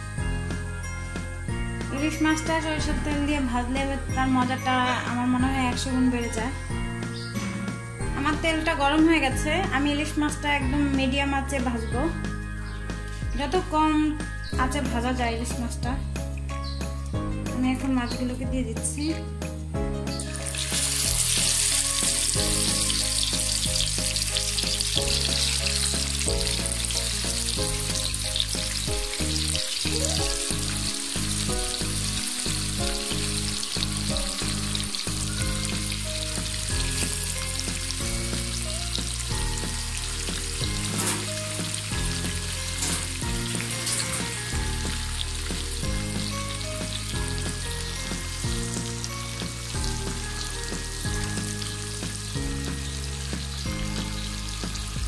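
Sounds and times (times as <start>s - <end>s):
background music: 0.0s - 55.0s
fish sizzling in oil: 20.1s - 55.0s.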